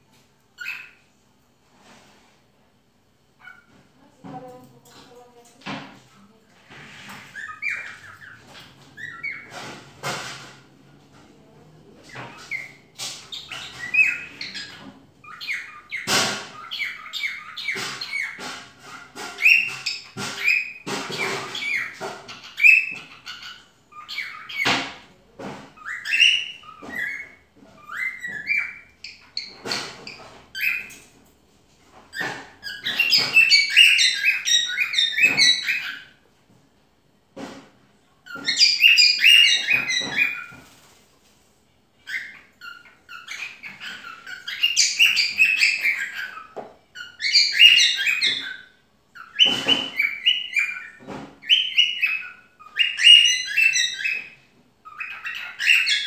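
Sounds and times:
cockatiel chirping and whistling: 0.6s - 1.0s, 7.3s - 10.1s, 12.2s - 24.8s, 25.8s - 31.0s, 32.2s - 36.2s, 38.3s - 40.6s, 42.0s - 56.0s.

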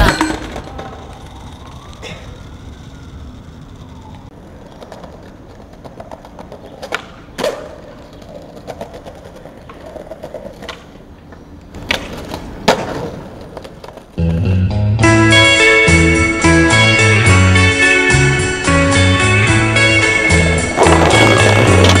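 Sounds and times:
skateboard wheels rolling on paving: 0.1s - 14.6s, 18.9s - 22.0s
skateboard clacks: 4.3s - 14.6s, 19.9s - 22.0s
music: 14.2s - 22.0s.

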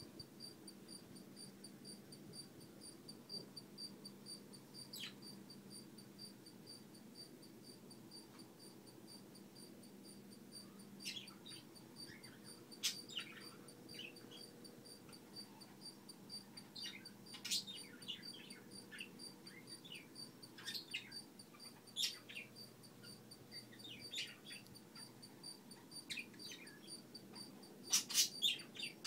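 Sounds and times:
birds chirping: 4.3s - 5.4s, 10.6s - 29.0s.

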